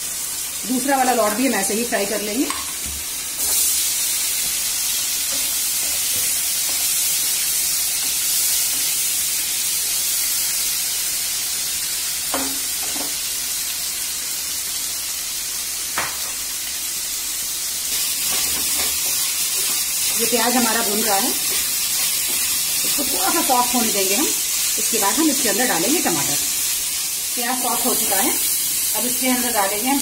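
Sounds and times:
food sizzling in hot oil: 0:00.0 - 0:30.0.

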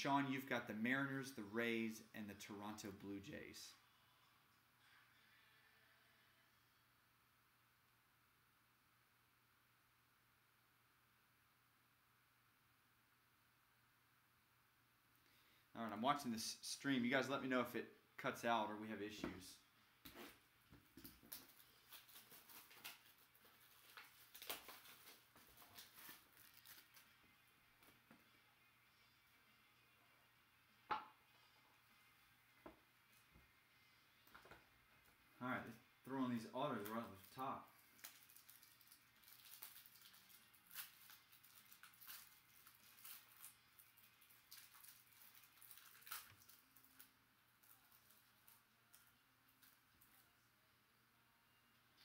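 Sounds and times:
plastic wrapper crinkling and tearing: 0:21.0 - 0:27.4, 0:36.8 - 0:50.3.

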